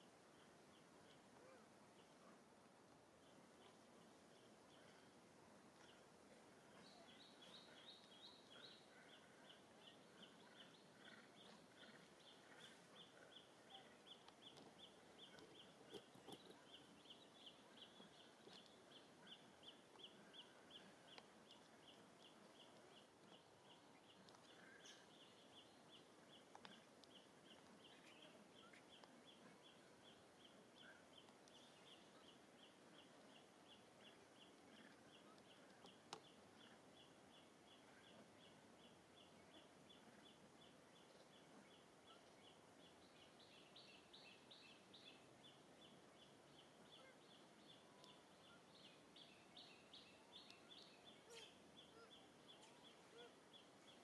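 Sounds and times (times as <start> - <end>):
faint outdoor ambience: 0.0 - 54.0.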